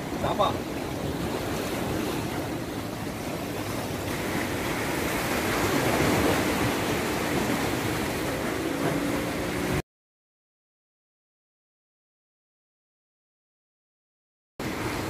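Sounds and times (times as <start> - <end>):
surf washing against rocks: 0.0 - 9.8, 14.6 - 15.0
wind on microphone: 0.0 - 9.8.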